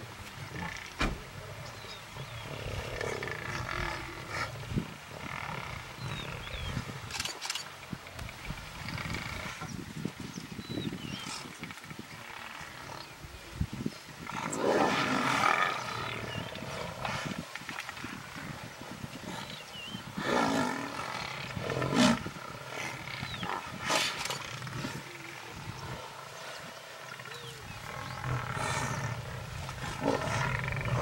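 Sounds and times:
lions snarling and growling: 0:14.2 - 0:31.0.

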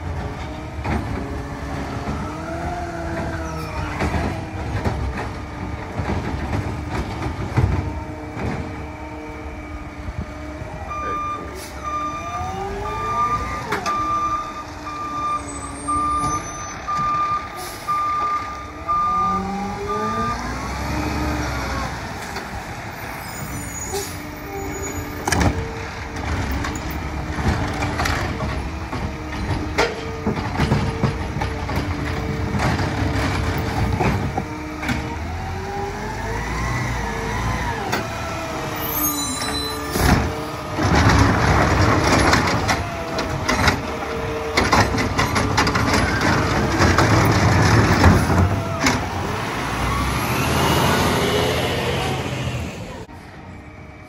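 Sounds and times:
truck engine revving: 0:00.0 - 0:53.1
sharp knocks and clunks: 0:03.1 - 0:08.8, 0:25.2 - 0:35.2, 0:39.9 - 0:49.2
reversing alarm beeps: 0:10.8 - 0:20.4.

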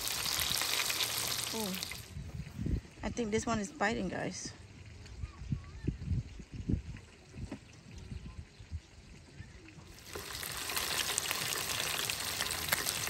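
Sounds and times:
fish sizzling in hot oil: 0:00.0 - 0:02.1, 0:09.6 - 0:13.0.

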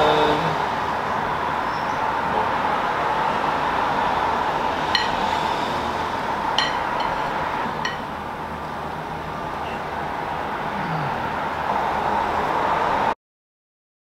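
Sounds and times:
metal utensil clinking on plate: 0:05.0 - 0:05.2, 0:06.6 - 0:08.1.

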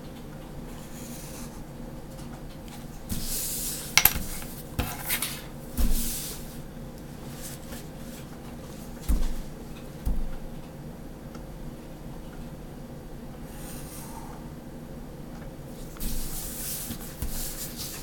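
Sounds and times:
ruler knocking on wooden table: 0:04.0 - 0:04.4.

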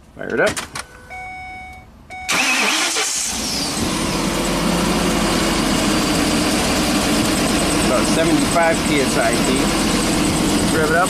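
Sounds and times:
steady beep: 0:01.0 - 0:02.3
engine cranking and idling: 0:02.2 - 0:11.0.

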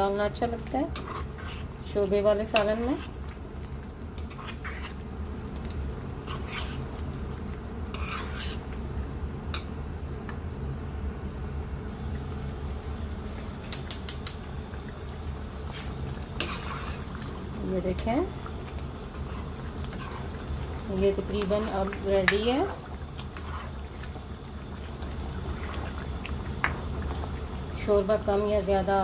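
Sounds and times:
steady low hum: 0:00.0 - 0:29.0
plastic spoon scraping a pan: 0:01.0 - 0:01.7, 0:06.3 - 0:06.8, 0:07.9 - 0:08.6.

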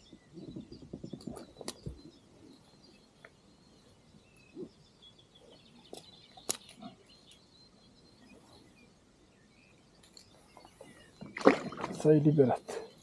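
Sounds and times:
faint bird chirps: 0:00.0 - 0:13.0.

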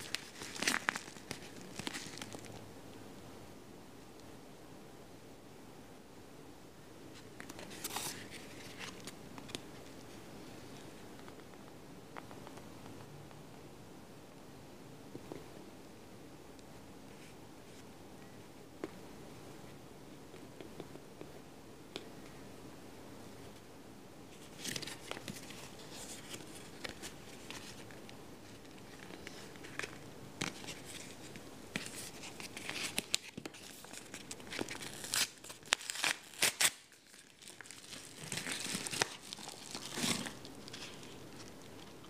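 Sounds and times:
envelope crinkling and tearing: 0:00.0 - 0:02.6, 0:28.5 - 0:42.0.

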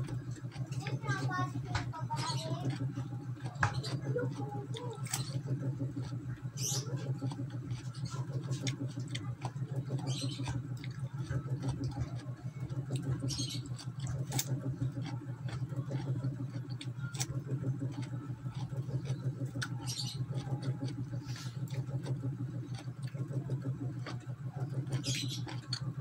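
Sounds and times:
chewing crisp cucumber: 0:00.0 - 0:26.0
low hum: 0:00.0 - 0:26.0.

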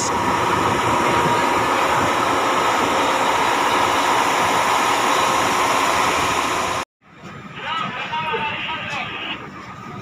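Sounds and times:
locomotive machinery whirring: 0:00.0 - 0:06.8.

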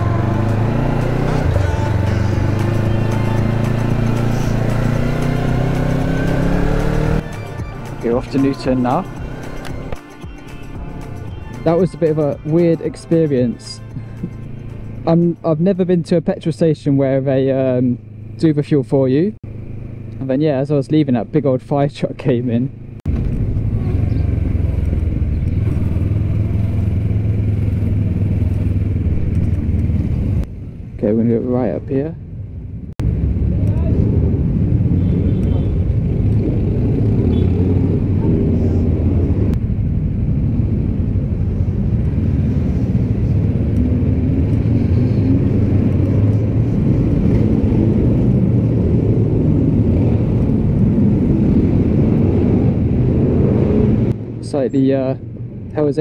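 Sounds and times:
road noise: 0:00.0 - 0:56.0
motorcycle engine running: 0:22.7 - 0:30.4.

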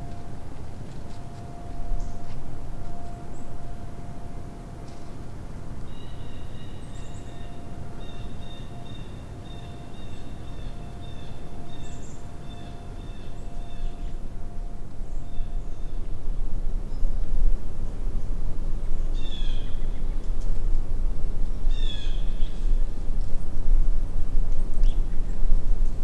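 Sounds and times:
faint steady high tones: 0:00.0 - 0:18.6
faint bird chirps: 0:05.8 - 0:14.3.

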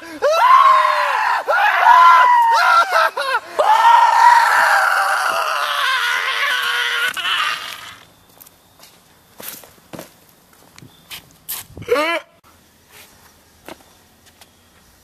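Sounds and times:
young man screaming: 0:00.0 - 0:08.0, 0:11.8 - 0:12.4.

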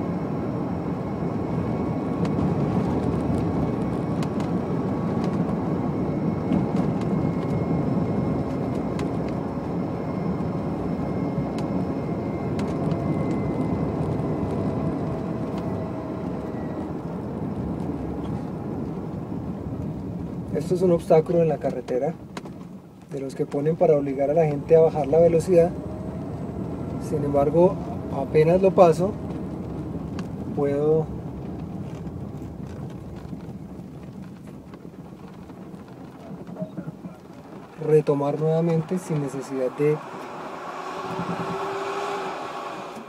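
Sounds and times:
road and wind noise: 0:00.0 - 0:43.0
faint high whine: 0:36.2 - 0:43.0.

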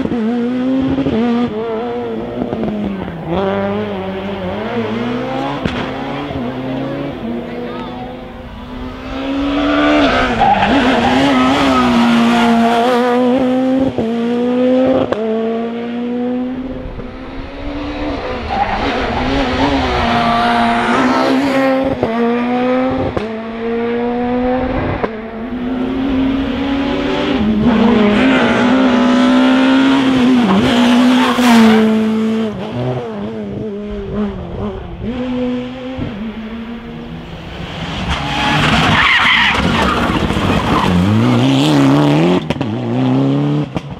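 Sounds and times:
rally car engines revving: 0:00.0 - 0:43.9.

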